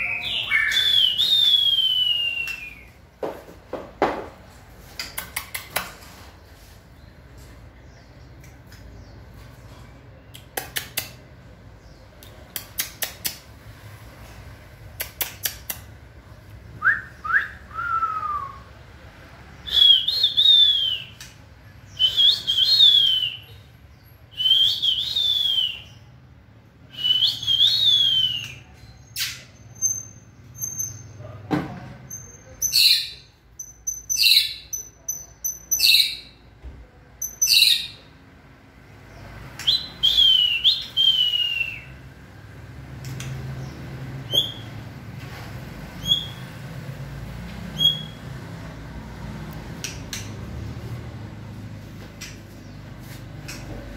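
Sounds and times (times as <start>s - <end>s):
bird whistled phrases: 0.0s - 2.9s, 19.6s - 21.3s, 24.3s - 26.0s, 26.9s - 30.2s, 39.6s - 42.0s
bird clicks: 12.2s - 13.5s.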